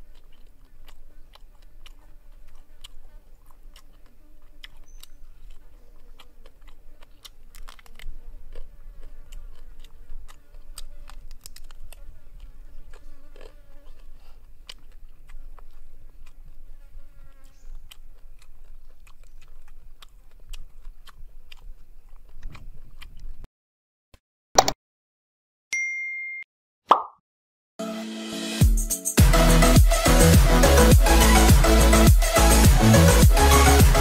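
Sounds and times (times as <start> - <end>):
person chewing crunchy food: 0.0 - 23.5
sharp pop: 26.9 - 27.2.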